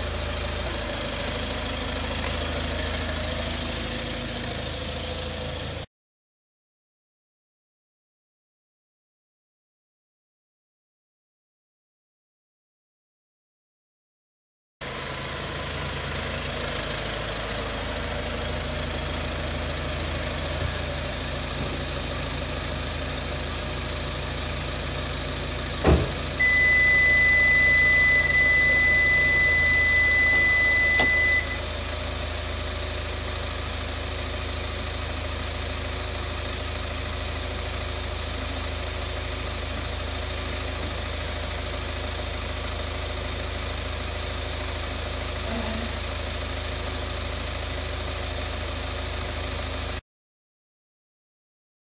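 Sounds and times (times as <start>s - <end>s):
car engine idling: 0.0s - 5.9s, 14.8s - 50.0s
steady high-pitched beep: 26.4s - 31.6s.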